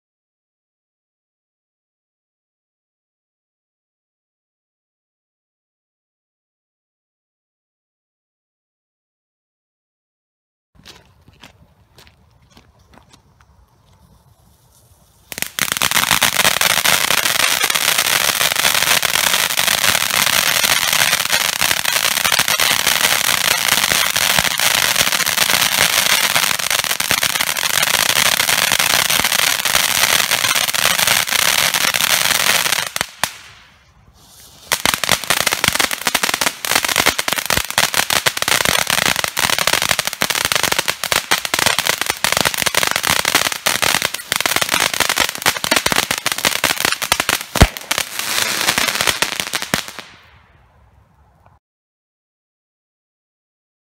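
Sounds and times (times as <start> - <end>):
firework fountain hissing and crackling: 14.4 - 50.2.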